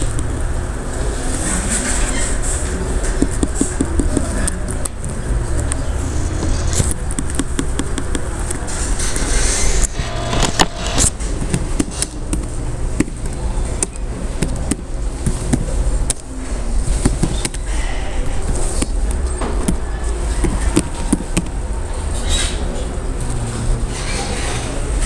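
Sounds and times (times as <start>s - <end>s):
steady low hum: 0.0s - 25.0s
keyboard key clicks: 6.8s - 8.6s.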